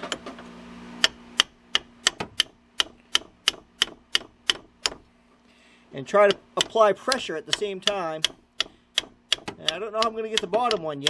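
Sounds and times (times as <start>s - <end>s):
hammer tapping steel wrench: 1.0s - 5.0s, 6.2s - 11.0s.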